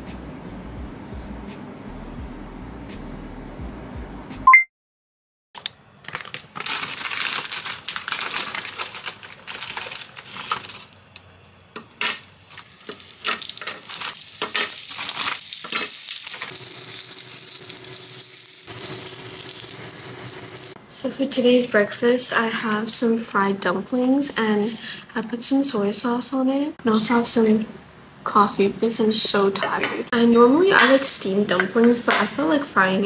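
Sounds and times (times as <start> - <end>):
plastic bag rustling: 6.0 - 11.2, 12.2 - 17.0
dumplings sizzling in hot oil: 7.8 - 20.8.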